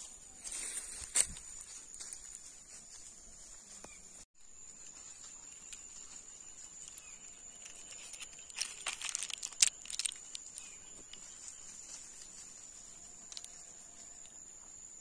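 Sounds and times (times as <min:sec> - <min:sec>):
insect trill: 0:00.4 - 0:15.0
dry crackles and clicks: 0:06.8 - 0:12.3, 0:13.2 - 0:14.4.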